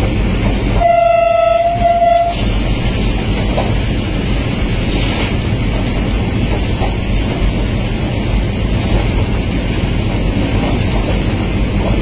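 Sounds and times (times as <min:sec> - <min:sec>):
train rumbling: 0:00.0 - 0:12.0
locomotive horn blasts: 0:00.8 - 0:02.4.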